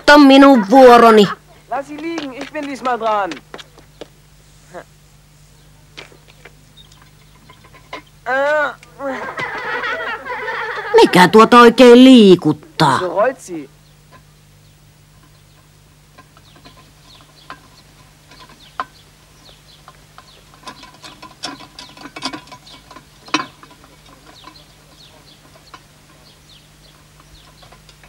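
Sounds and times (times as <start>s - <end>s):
tin can tumbling over stones: 1.8s - 3.5s.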